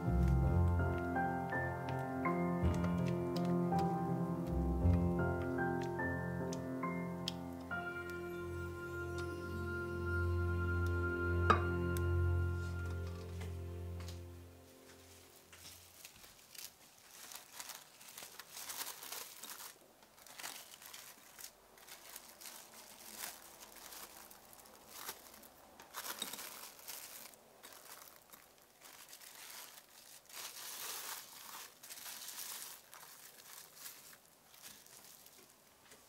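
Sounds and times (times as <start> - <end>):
plastic cling film crinkling: 0.0 - 36.0.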